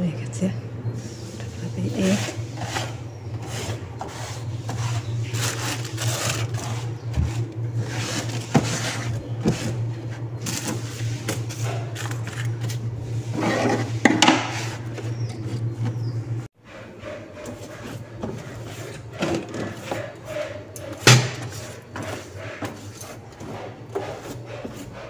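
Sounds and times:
cloth wiping wooden shelves: 1.0 - 9.8.

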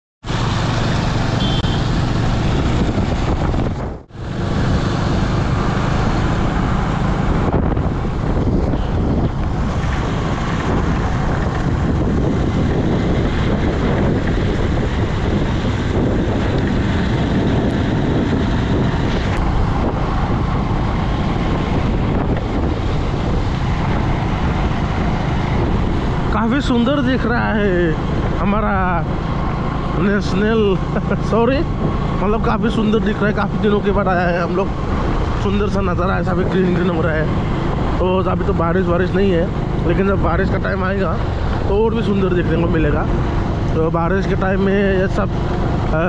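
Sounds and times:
motorcycle engine running: 0.3 - 32.8
wind buffeting microphone: 2.0 - 46.0.

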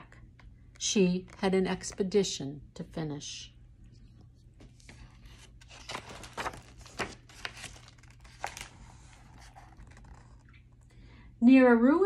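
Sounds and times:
book pages rustling: 3.9 - 10.8.

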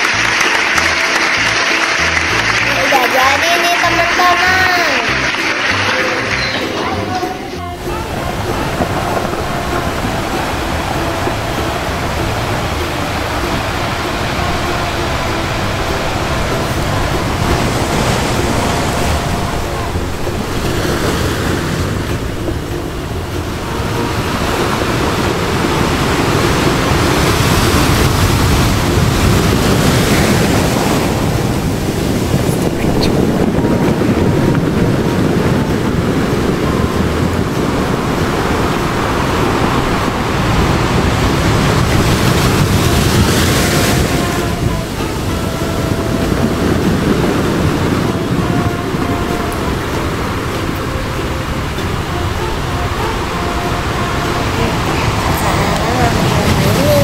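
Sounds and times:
ocean waves washing: 0.0 - 57.0.

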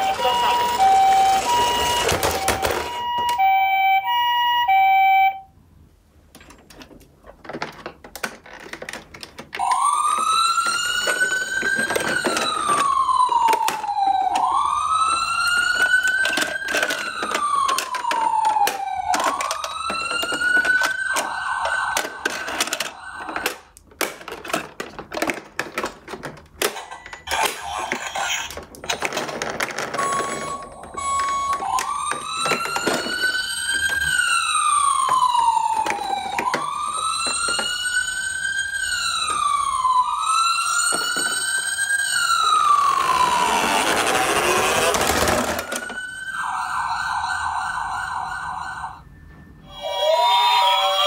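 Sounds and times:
toy plastic doors clicking: 0.0 - 3.8, 6.4 - 40.0, 40.6 - 46.4
toy wail siren: 0.0 - 5.5, 9.6 - 23.8, 29.9 - 51.0
two-tone toy siren: 0.0 - 5.5, 9.6 - 23.8, 29.9 - 51.0.

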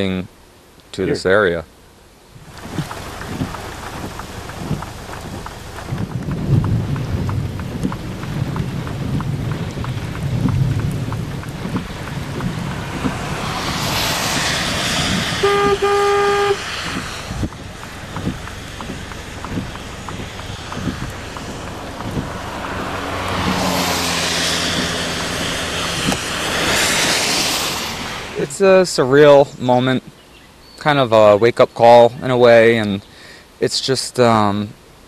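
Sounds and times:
wind and rain on microphone: 0.0 - 35.0.

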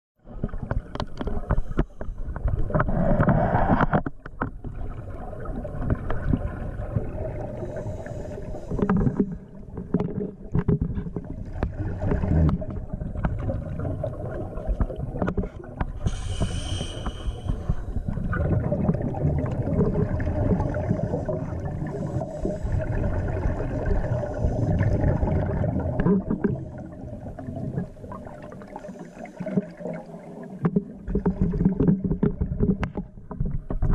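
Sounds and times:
muffled underwater rumble: 0.2 - 33.9
brief hiss: 16.0 - 17.7.

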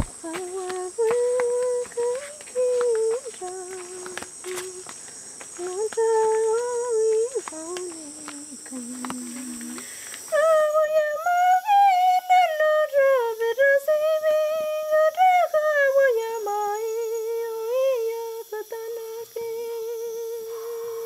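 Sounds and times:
high voice humming: 0.0 - 5.0.

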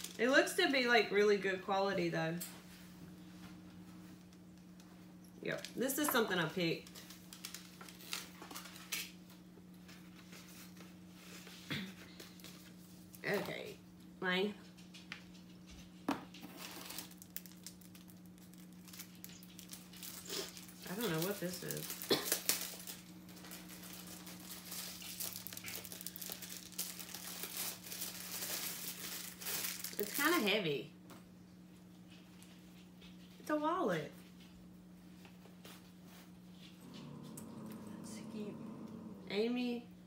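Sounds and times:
steady low hum: 0.0 - 40.0
packaging rustles and clicks: 6.8 - 9.2, 16.5 - 30.2
plastic wrapping crinkling: 6.8 - 9.4, 16.4 - 30.5.

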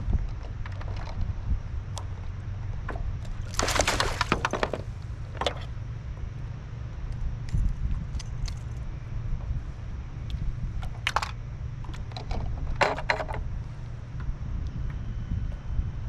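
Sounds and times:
wind rumble on microphone: 0.0 - 16.0
fishing gear clicking and clattering: 3.2 - 5.7.

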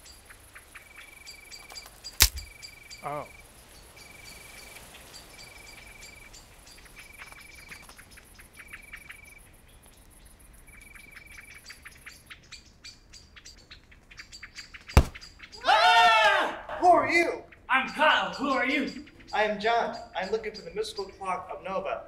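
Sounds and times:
bird trilling: 16.8 - 21.7
high bird chirps: 17.4 - 21.6.

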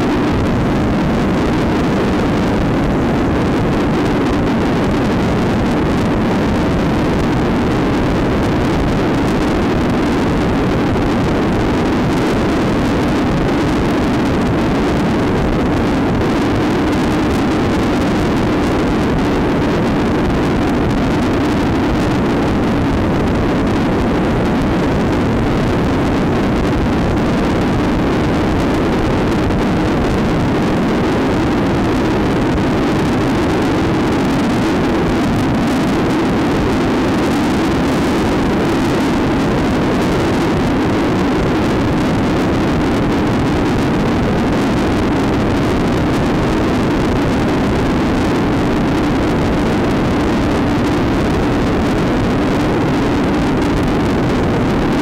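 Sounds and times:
wind noise: 0.0 - 55.0.

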